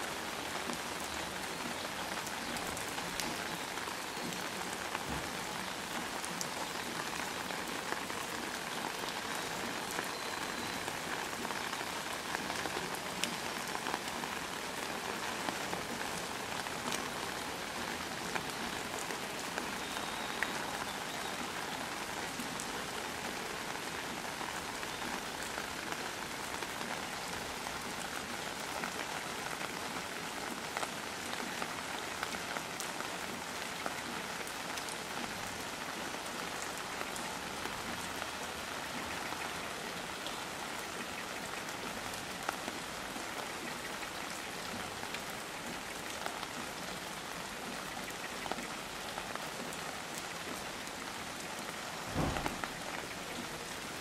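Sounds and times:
rain on wet pavement: 0.0 - 54.0
raindrop hits: 52.0 - 53.2.

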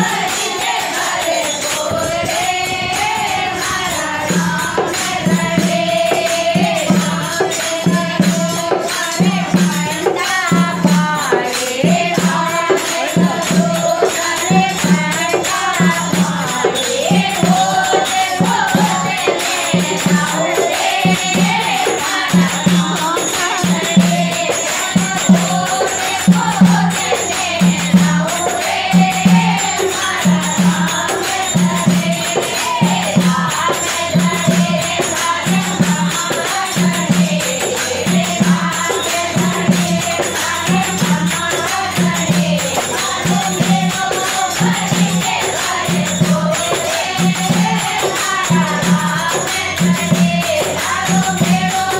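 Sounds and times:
hand drum beating: 0.0 - 51.9
small bells jingling: 0.0 - 51.9
women singing devotional song: 0.0 - 51.9.

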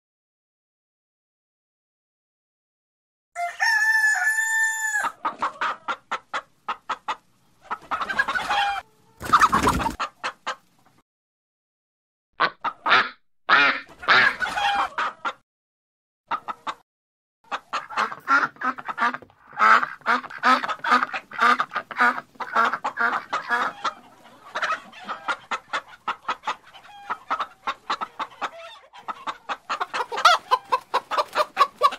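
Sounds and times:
rooster crowing: 3.4 - 5.2
chickens clucking: 3.6 - 11.0, 12.4 - 15.4, 16.3 - 16.8, 17.4 - 31.9.

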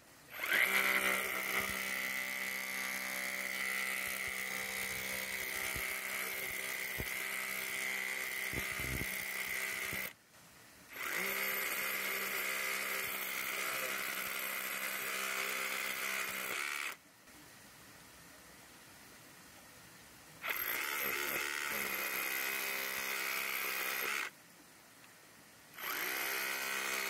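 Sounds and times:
hammer drill chiselling rock: 0.3 - 10.2, 10.9 - 17.0, 20.4 - 24.3, 25.7 - 27.0.

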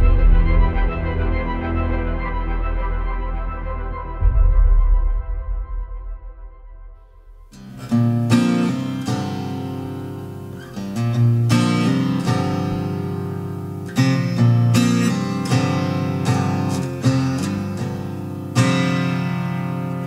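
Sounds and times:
guitar chords ringing: 7.0 - 20.0.

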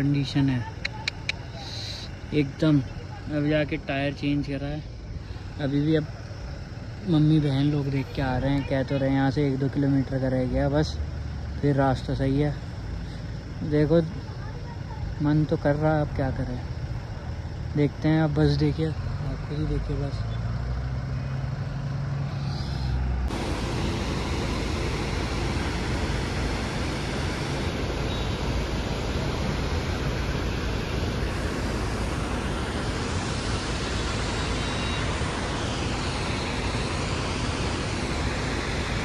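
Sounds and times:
low car engine hum: 0.0 - 39.0
tyres and wind rushing: 19.8 - 39.0.

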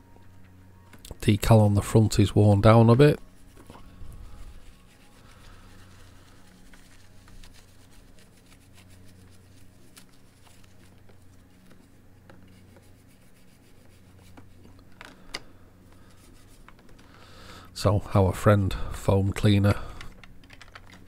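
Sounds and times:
steady low hum: 0.0 - 21.0
hands rubbing plastic parts: 2.7 - 17.2, 20.0 - 21.0.

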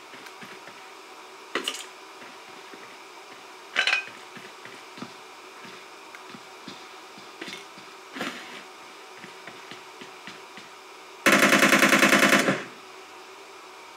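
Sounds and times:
rapid loud bangs: 11.3 - 12.7.

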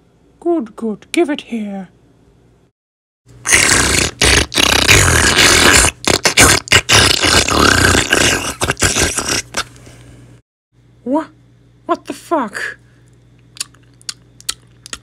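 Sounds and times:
loud gulping and slurping: 3.4 - 9.7, 13.5 - 15.0.

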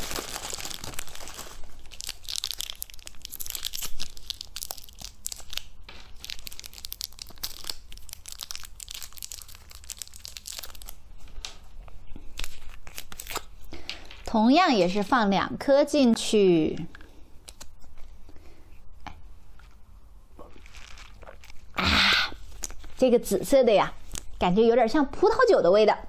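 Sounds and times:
candy wrappers crinkling and tearing: 0.0 - 14.3, 17.0 - 18.1, 20.4 - 24.4.

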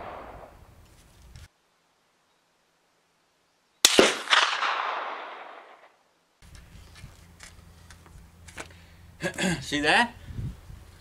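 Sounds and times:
rifle shot with echo: 0.0 - 0.6, 3.8 - 6.0.

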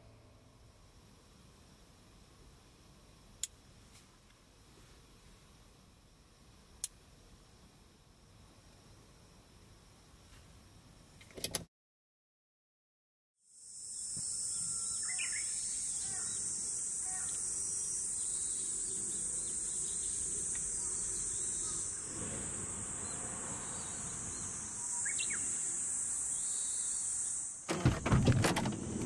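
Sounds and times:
chorus of summer insects: 0.0 - 11.5, 13.4 - 29.0.

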